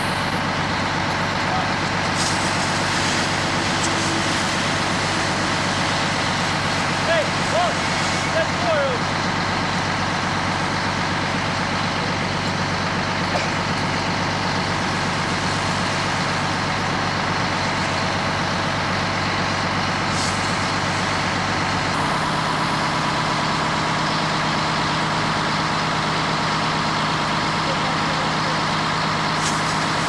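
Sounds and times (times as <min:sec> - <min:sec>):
fire engine running: 0:00.0 - 0:30.0
hose stream hissing: 0:01.9 - 0:09.1, 0:20.0 - 0:24.4, 0:29.4 - 0:30.0.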